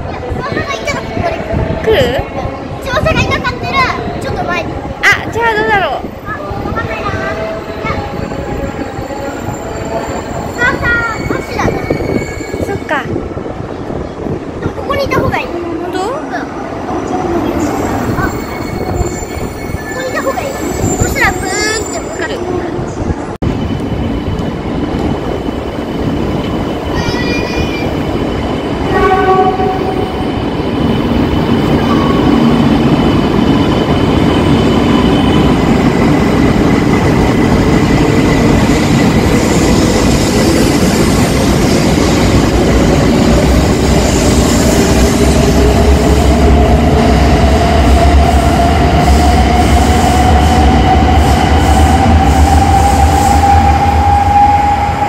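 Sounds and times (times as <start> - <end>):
low train rumble: 0.0 - 55.0
train horn: 28.9 - 30.1.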